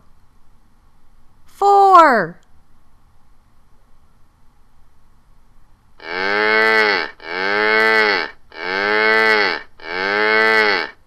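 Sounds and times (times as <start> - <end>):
cow mooing: 6.0 - 11.0.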